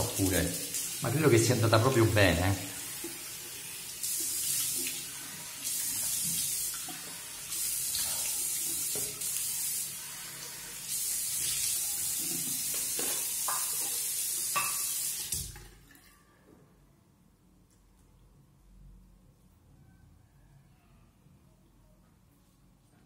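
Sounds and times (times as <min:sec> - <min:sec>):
tap running into sink: 0:12.4 - 0:15.7.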